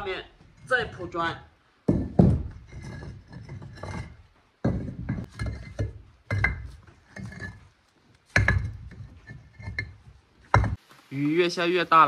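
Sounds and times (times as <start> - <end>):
bricks knocking together: 1.8 - 10.8.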